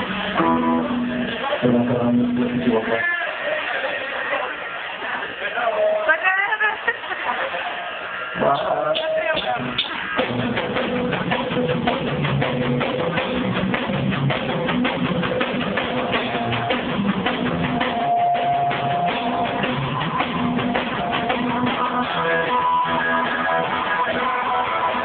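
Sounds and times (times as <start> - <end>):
small band playing live: 0.0 - 4.2, 6.8 - 25.0
drum hits: 8.4 - 25.0.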